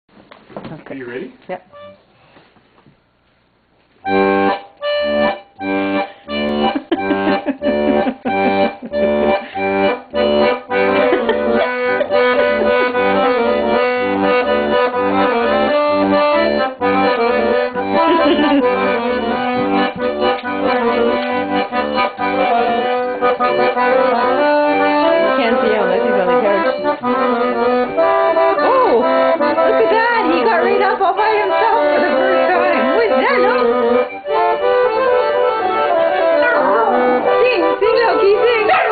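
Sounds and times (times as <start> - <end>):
accordion playing a tune: 1.6 - 2.2, 4.0 - 38.9.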